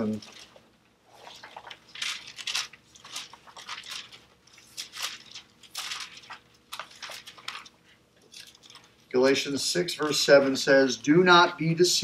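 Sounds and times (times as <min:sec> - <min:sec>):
thin pages rustling: 0:00.0 - 0:09.1.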